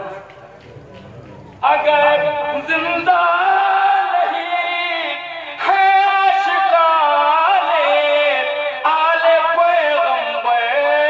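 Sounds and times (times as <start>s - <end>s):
man chanting into a microphone: 1.6s - 11.0s.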